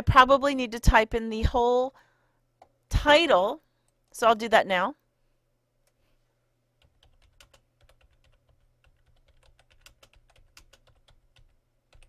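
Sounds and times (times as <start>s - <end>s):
faint computer keyboard typing: 6.8s - 12.0s.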